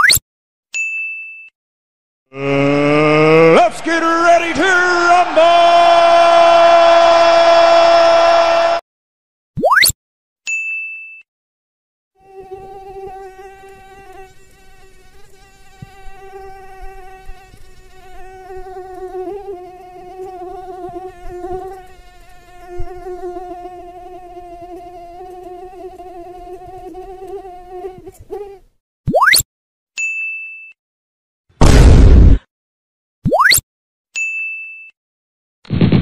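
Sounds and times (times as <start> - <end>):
flying insect buzzing: 12.2 - 28.6.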